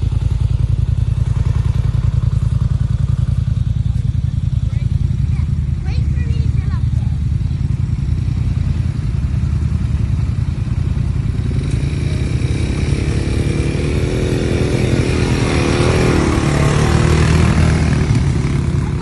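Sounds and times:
quad bike engine passing: 0:00.0 - 0:19.0.

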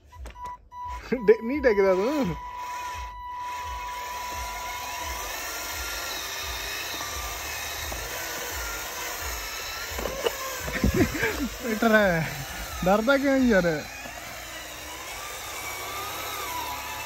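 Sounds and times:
toy electric motors whirring: 0:00.0 - 0:17.0
steady high tone: 0:00.2 - 0:07.5.

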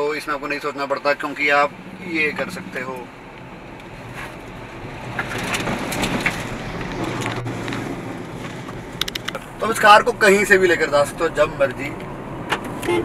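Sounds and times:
car engine and road noise: 0:00.0 - 0:13.0
sharp click: 0:09.0 - 0:09.4.

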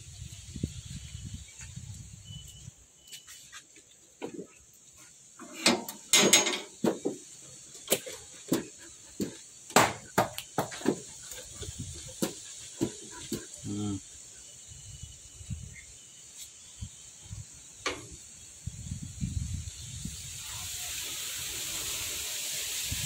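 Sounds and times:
high insect-like hiss: 0:00.0 - 0:23.0
metal kennel gate clanking: 0:05.4 - 0:07.0.

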